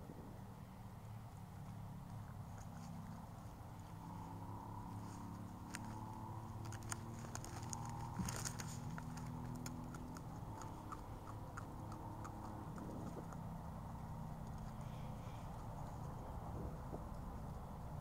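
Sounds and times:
small evenly spaced ticks: 1.4 - 18.0
sharp clicks and crackles: 5.6 - 13.5
low rumble: 10.2 - 18.0.

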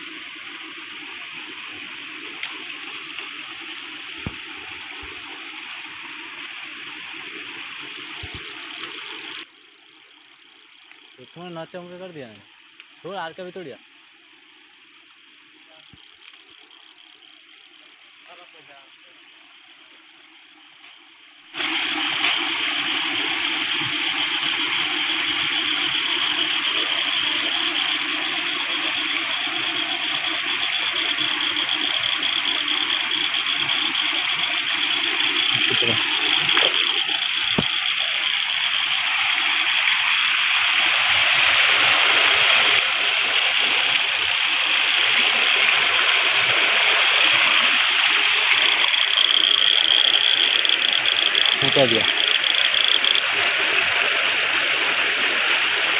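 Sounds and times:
water rushing along channel: 0.0 - 9.5, 13.0 - 13.8, 17.7 - 55.9.

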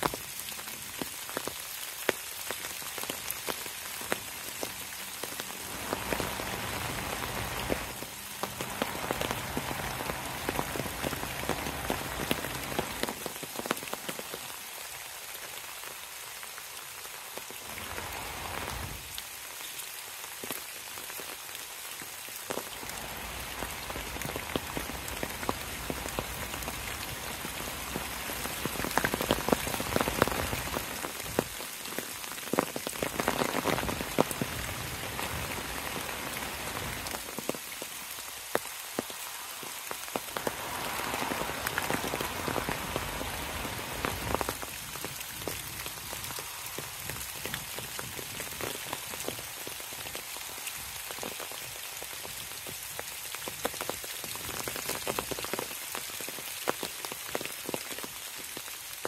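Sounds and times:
raindrops ticking: 0.0 - 14.6, 20.3 - 50.4
rain pattering on leaves: 0.0 - 59.0.

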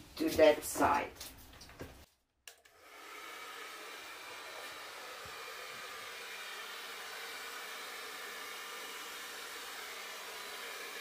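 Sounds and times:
hair dryer blowing: 2.6 - 11.0.

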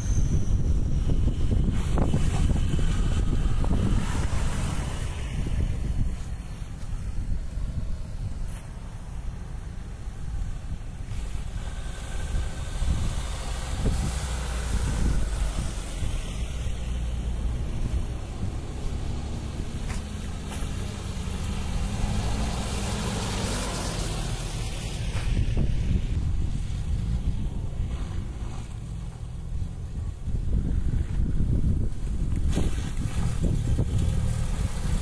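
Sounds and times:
suv engine passing: 0.0 - 35.0
wind rumble on microphone: 0.0 - 35.0
tyres crunching on dirt: 17.3 - 24.4.

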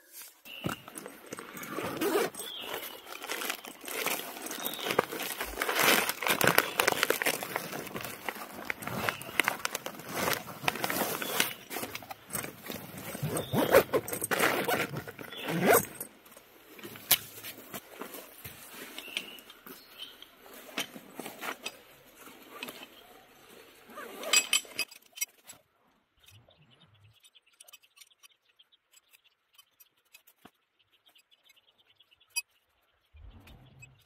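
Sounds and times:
nylon sack rustling: 0.1 - 19.8.

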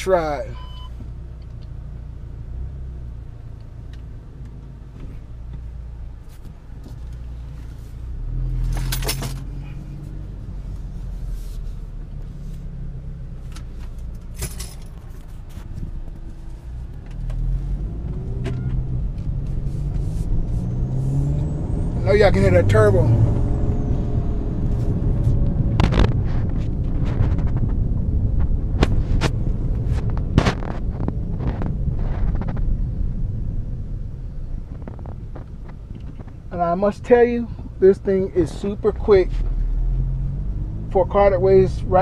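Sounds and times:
car engine running: 0.0 - 42.0.

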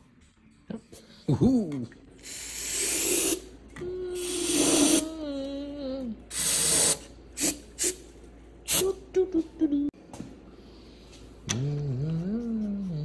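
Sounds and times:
aerosol spray hissing: 2.2 - 3.4, 4.2 - 5.0.

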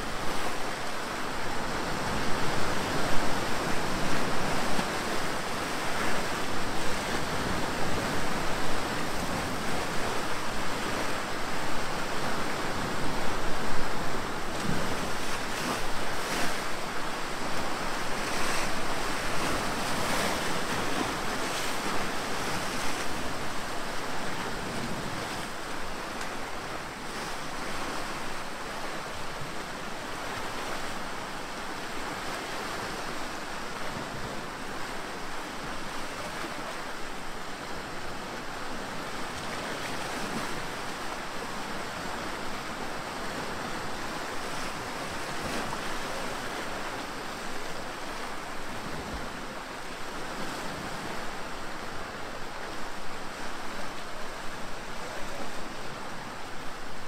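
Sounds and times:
waves breaking against rocks: 12.0 - 31.0.

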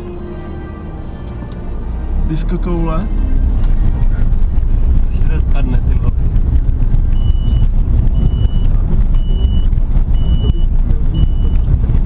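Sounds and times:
car engine and road rumble: 0.0 - 12.0
high electronic beep: 7.1 - 11.7.

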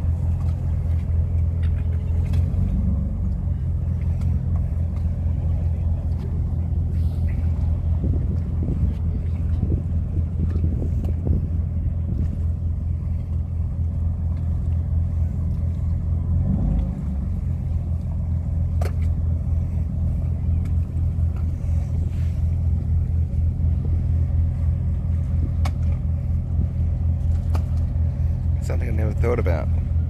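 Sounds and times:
boat engines droning: 0.0 - 30.0.

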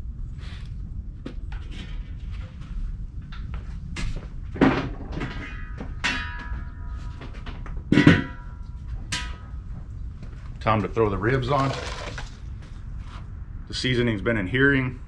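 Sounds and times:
loud metal clanks ringing: 5.3 - 9.6.

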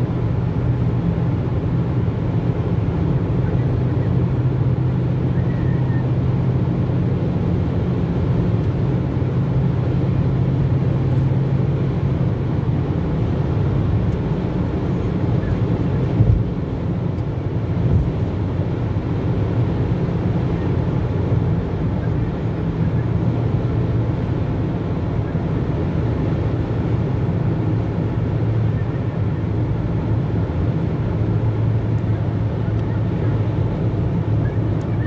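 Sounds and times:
car interior road drone: 0.0 - 35.0.

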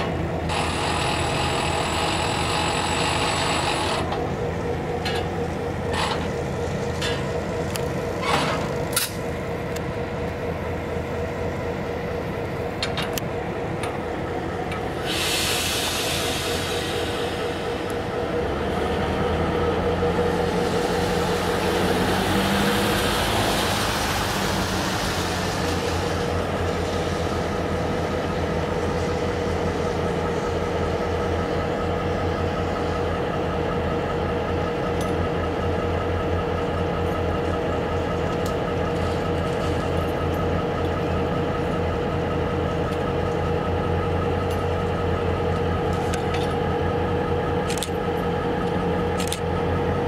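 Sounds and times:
diesel locomotive engine humming: 0.0 - 50.0
hiss: 14.9 - 18.1.

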